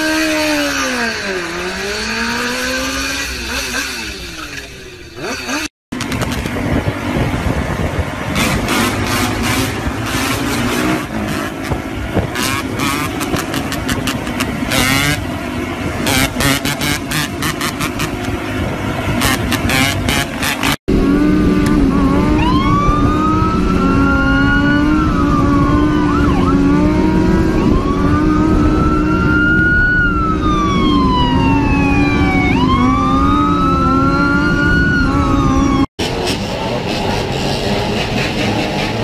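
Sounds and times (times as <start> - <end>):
engine drone: 0.0 - 39.0
motorcycle engine: 0.0 - 39.0
road noise: 0.0 - 39.0
police siren wailing: 21.2 - 35.9.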